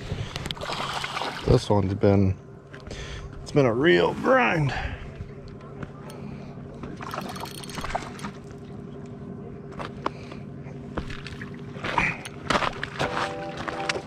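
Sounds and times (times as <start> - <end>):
steady low hum: 0.0 - 14.0
background music: 13.1 - 14.0.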